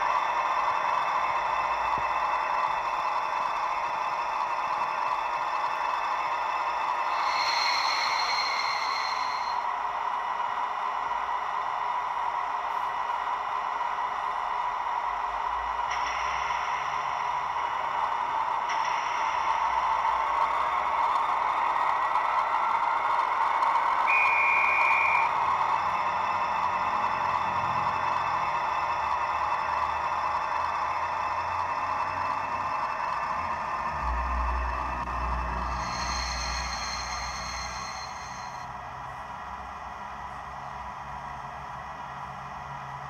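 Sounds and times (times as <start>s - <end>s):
model train diesel engine drone: 0.0s - 43.0s
high steady tones: 0.3s - 9.8s, 35.0s - 38.7s.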